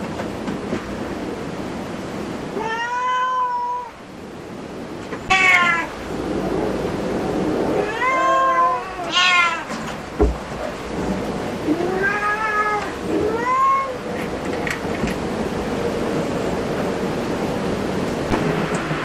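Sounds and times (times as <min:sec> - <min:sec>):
cat meowing: 0:02.6 - 0:04.0, 0:05.3 - 0:05.9, 0:07.8 - 0:09.8, 0:11.6 - 0:14.0.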